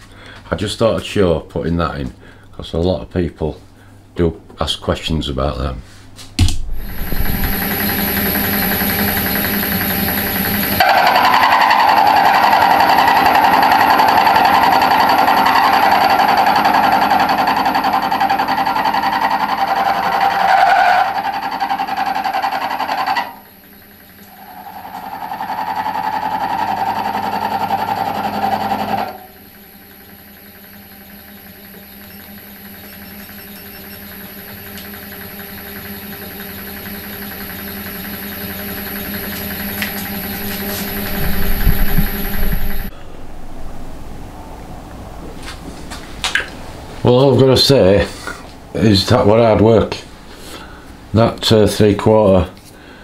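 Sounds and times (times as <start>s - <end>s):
machine running quietly: 6.7s - 53.0s
milling machine cutting metal: 6.8s - 42.9s.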